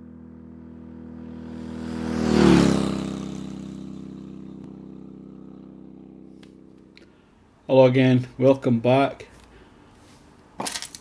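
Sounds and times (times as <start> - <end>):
motorcycle engine passing by: 0.0 - 7.4.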